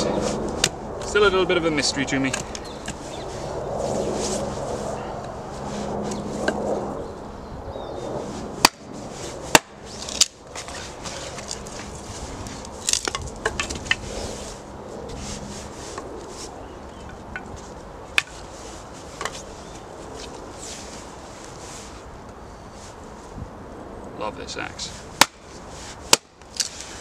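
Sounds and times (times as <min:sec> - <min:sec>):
axe splitting sticks: 0:08.6 - 0:08.9, 0:09.5 - 0:11.8, 0:12.5 - 0:14.0, 0:17.4 - 0:18.4, 0:25.2 - 0:27.0.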